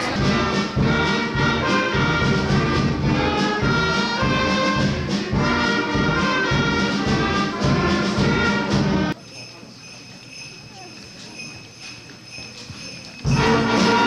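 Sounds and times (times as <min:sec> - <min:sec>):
brass music over a steady beat: 0:00.0 - 0:09.2, 0:13.3 - 0:14.0.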